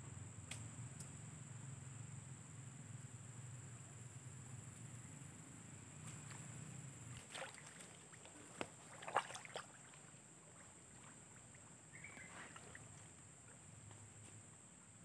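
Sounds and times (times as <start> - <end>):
splashing through shallow water: 6.0 - 13.2.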